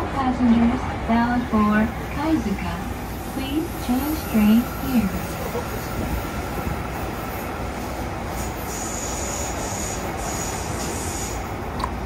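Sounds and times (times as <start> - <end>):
train wheels rumbling in tunnel: 0.0 - 12.0
high wheel squeal: 8.4 - 11.4.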